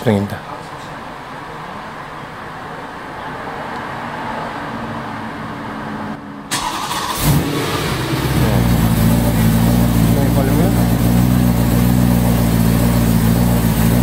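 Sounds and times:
engine rumbling: 5.0 - 14.0
car engine cranking and firing: 6.5 - 14.0.

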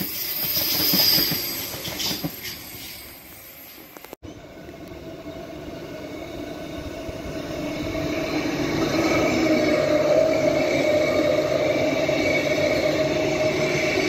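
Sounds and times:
train wheels clacking on rail joints: 0.0 - 3.1
electric train hum: 0.0 - 14.0.

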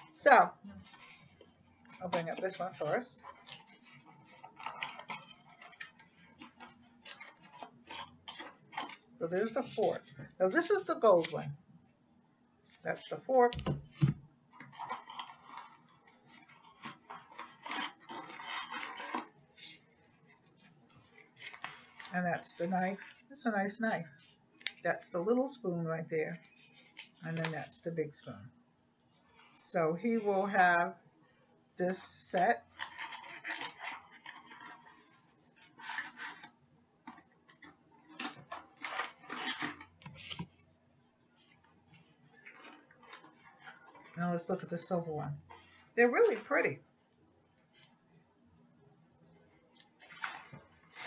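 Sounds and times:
cutlery packaging rustling: 2.0 - 10.2, 14.6 - 19.8, 32.7 - 40.7.

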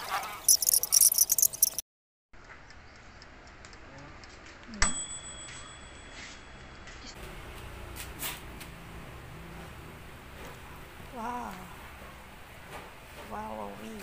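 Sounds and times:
rapid high clicking: 0.5 - 1.8
toaster timer bell ringing: 0.5 - 1.8, 4.8 - 6.7.

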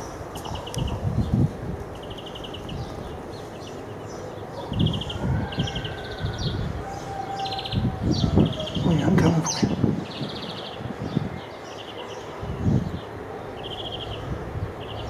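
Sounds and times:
small bird chirping: 2.0 - 6.6.

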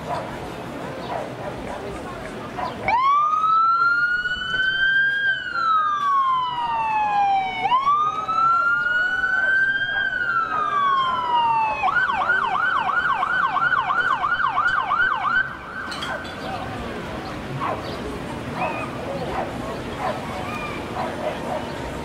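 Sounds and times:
police siren wail and yelp: 2.9 - 16.3, 20.1 - 22.0.

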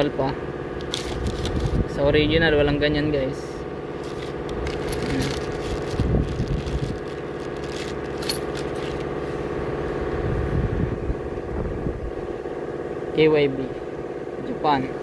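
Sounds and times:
engine idling: 0.0 - 15.0
plastic wrapping crinkling: 0.8 - 1.9, 4.0 - 9.2.

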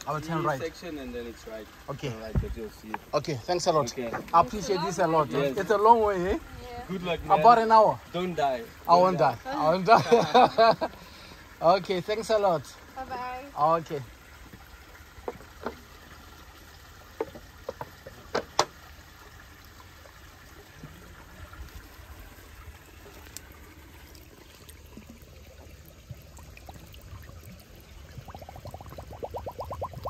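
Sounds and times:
water trickling: 0.0 - 30.0
sharp clicks and knocks: 17.2 - 18.8.

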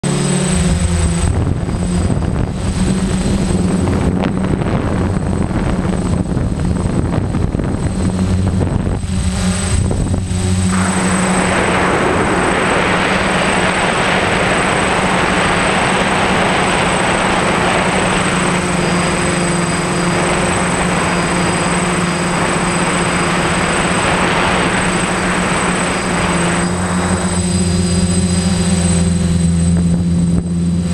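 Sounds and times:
drone motors whining: 0.0 - 30.9
rushing hiss of air: 10.6 - 29.2.

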